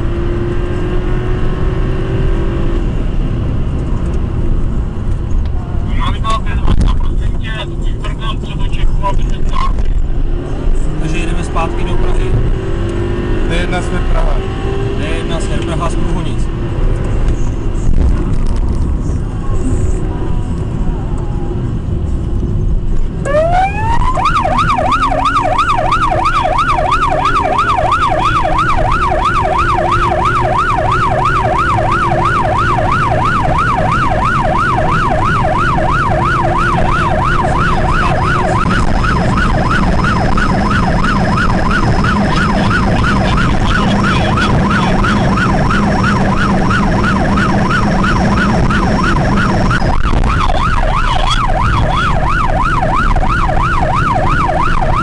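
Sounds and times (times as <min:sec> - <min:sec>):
car engine and tyres on road: 0:00.0 - 0:55.0
police siren wailing and yelping: 0:23.2 - 0:55.0.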